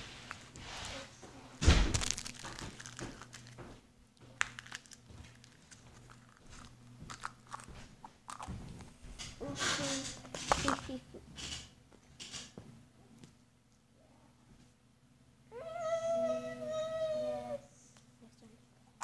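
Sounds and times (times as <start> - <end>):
plastic eggs pulled open: 1.9 - 3.6
small clicks and crackles: 2.0 - 3.6, 4.2 - 7.7.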